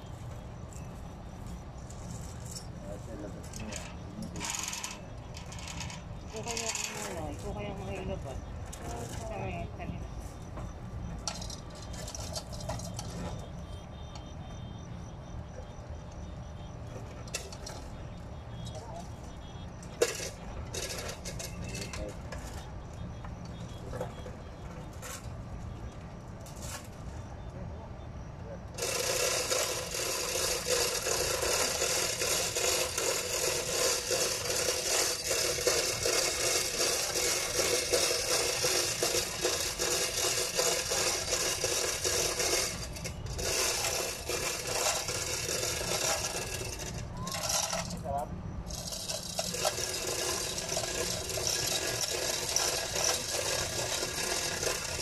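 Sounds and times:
scrapes on concrete: 0:28.8 - 0:48.0
metal chain clinking on concrete: 0:48.7 - 0:55.0.

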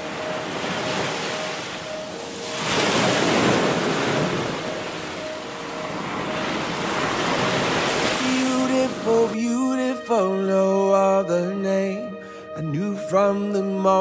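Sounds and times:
surf washing onto beach: 0:00.0 - 0:09.4.

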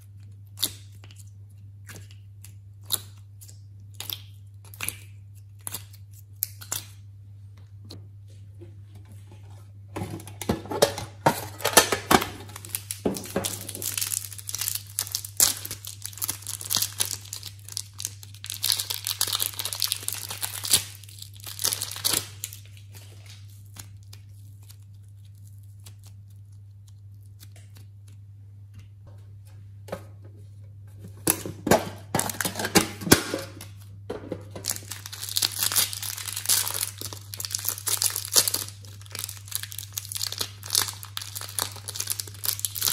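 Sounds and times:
plastic packaging crinkling and tearing: 0:11.4 - 0:28.2, 0:34.6 - 0:42.9.

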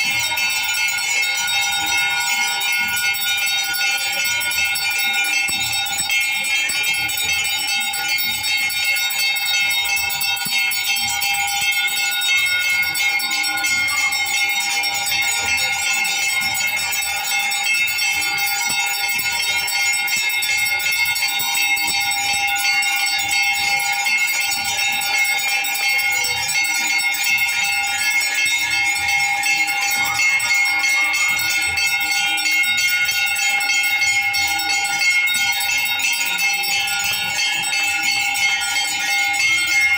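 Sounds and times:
bells ringing: 0:00.0 - 0:39.9.

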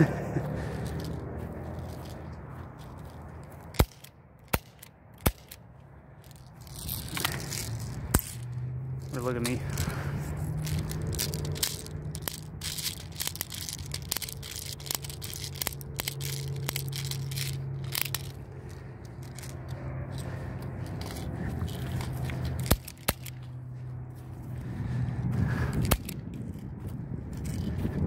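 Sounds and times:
magazine loading clicks and scraping: 0:00.7 - 0:23.6, 0:25.6 - 0:26.7
pistol clacks: 0:03.6 - 0:05.6, 0:06.2 - 0:08.6, 0:10.5 - 0:23.6, 0:25.8 - 0:26.3.

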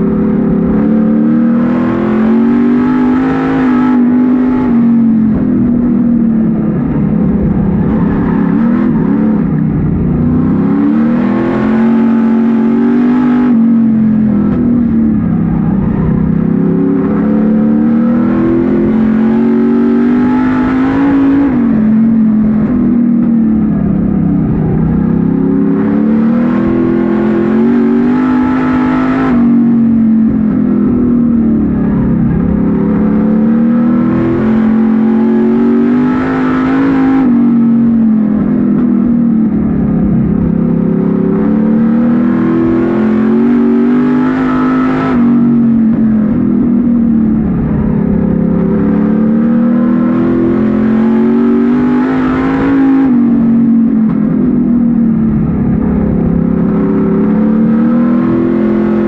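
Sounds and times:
race car engine under throttle: 0:00.0 - 0:59.0.

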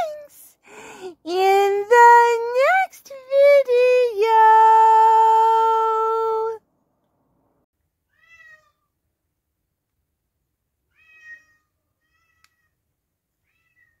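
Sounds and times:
cat meowing: 0:08.1 - 0:08.8, 0:10.9 - 0:12.7.

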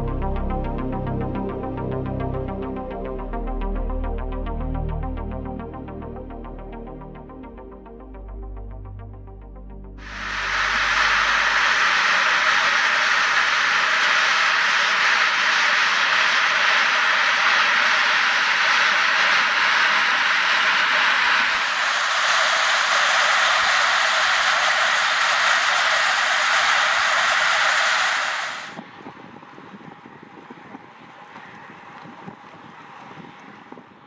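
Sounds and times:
steam hissing from vent: 0:10.0 - 0:28.8.

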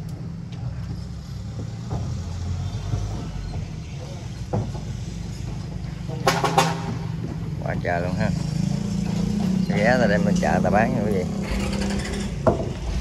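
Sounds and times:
small motorbike engine running: 0:08.7 - 0:13.0.

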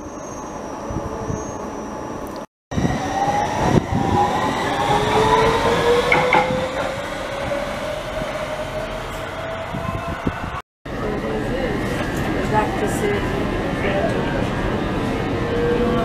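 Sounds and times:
wheels rumbling on rail: 0:00.0 - 0:16.0.

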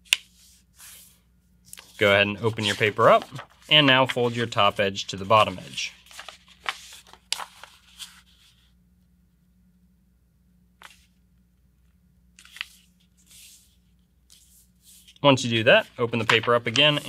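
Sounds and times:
paper rustling: 0:00.1 - 0:08.7, 0:10.8 - 0:11.2, 0:12.4 - 0:17.0
paper crinkling: 0:01.7 - 0:08.6, 0:12.4 - 0:17.0.

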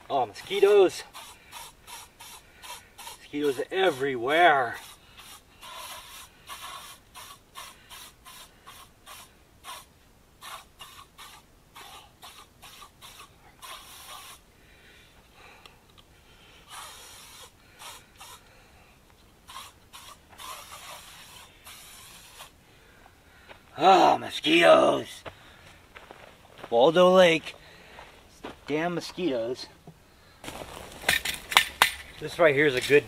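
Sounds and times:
spray can hissing: 0:01.0 - 0:14.4, 0:16.7 - 0:18.4, 0:19.4 - 0:22.6.

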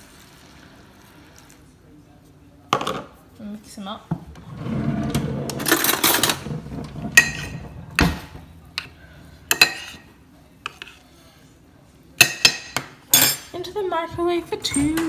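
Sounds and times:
spoon stirring in ceramic bowl: 0:08.7 - 0:11.3.

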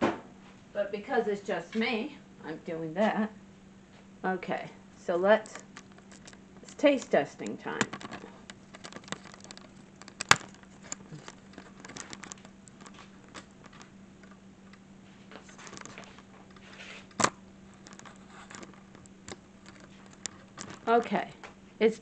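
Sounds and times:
faint steady hum: 0:00.0 - 0:22.0
camera handling clicks and rustling: 0:05.5 - 0:07.1, 0:07.8 - 0:14.4, 0:15.4 - 0:20.9.

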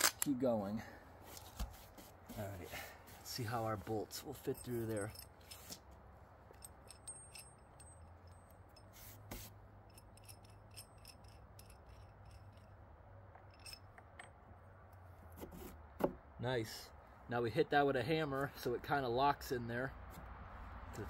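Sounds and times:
small metal clicks: 0:09.8 - 0:14.4.

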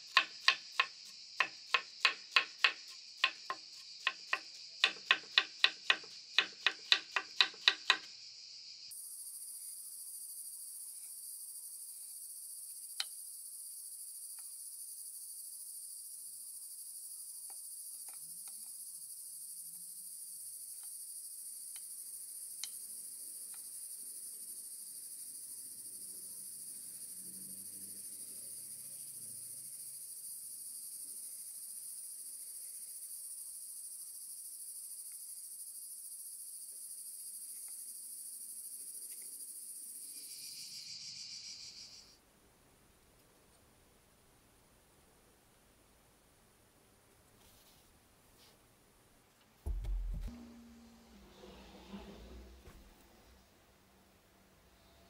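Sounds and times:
high-pitched insect chorus: 0:00.1 - 0:42.2.

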